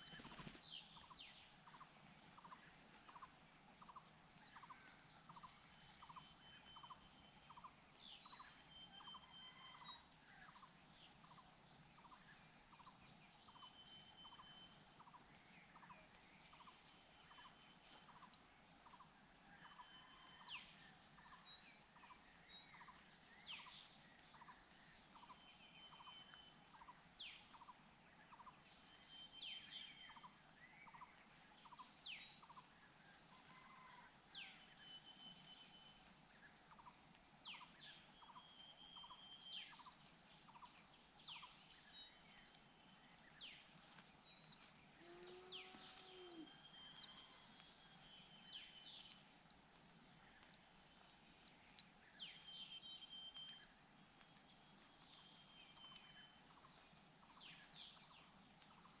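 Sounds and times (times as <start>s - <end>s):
birds chirping and calling: 0.0s - 32.8s, 34.7s - 59.0s.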